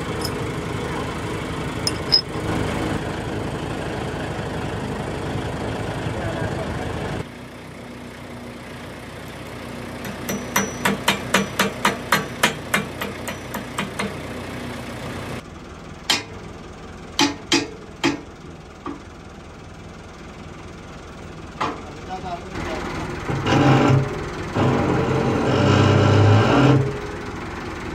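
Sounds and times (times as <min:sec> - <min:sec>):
engine idling: 0:00.0 - 0:27.9
hammer striking metal: 0:01.9 - 0:02.3, 0:10.0 - 0:14.2, 0:16.1 - 0:16.4, 0:17.2 - 0:18.2.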